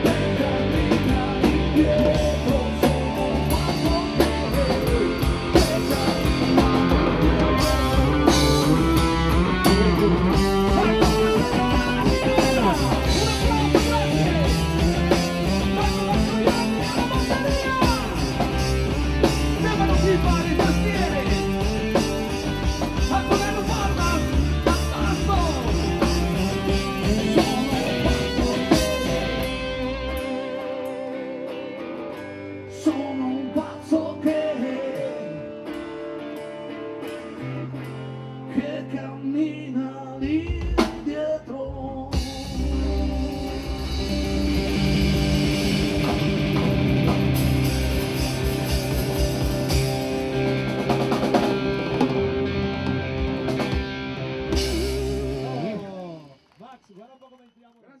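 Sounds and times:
person singing: 0.0s - 18.6s, 19.3s - 35.5s
live rock band playing: 0.0s - 56.5s.

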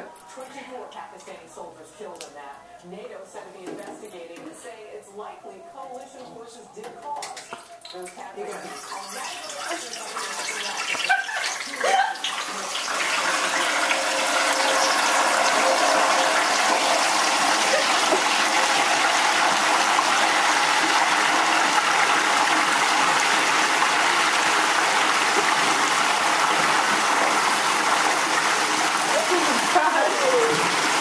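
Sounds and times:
hot oil sizzling and bubbling: 7.4s - 31.0s.

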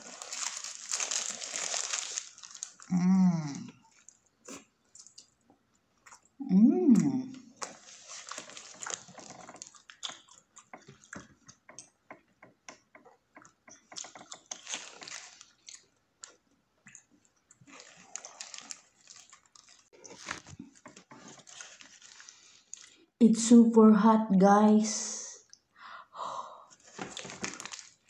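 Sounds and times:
close-up chewing and biting: 0.0s - 2.9s, 7.4s - 12.0s, 12.8s - 23.0s, 26.8s - 28.0s.

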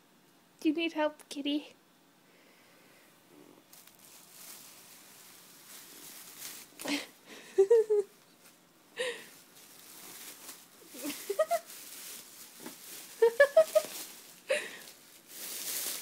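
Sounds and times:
plastic bag rustling: 3.6s - 16.0s.

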